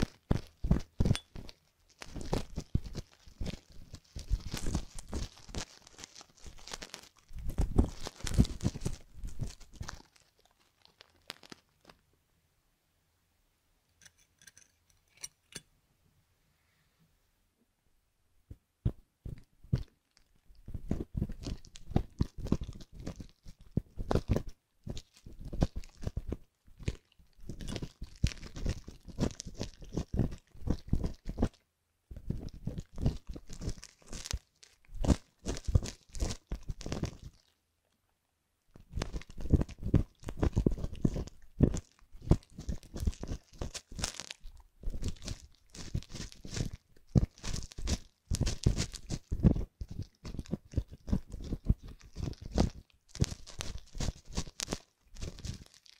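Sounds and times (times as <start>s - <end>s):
crunchy crackling scraping: 0.0s - 12.0s, 32.2s - 37.4s, 38.8s - 55.9s.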